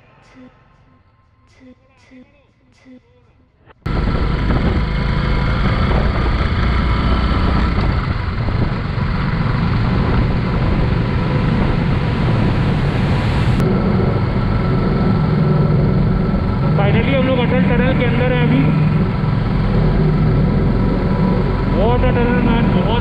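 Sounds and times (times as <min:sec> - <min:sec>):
wind buffeting microphone: 0:03.8 - 0:17.2
motorcycle running: 0:03.8 - 0:23.0.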